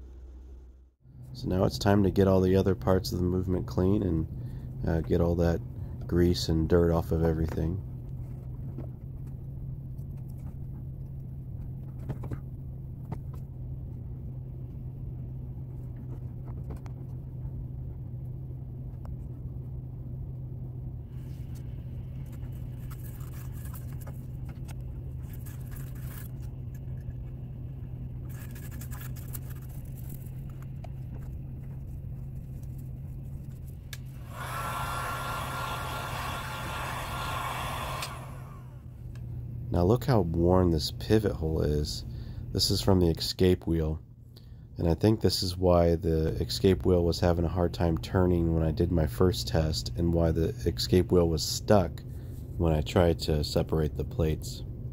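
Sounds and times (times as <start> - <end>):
steady low hum: 0.0 - 54.9
hot-air blower running: 33.9 - 39.0.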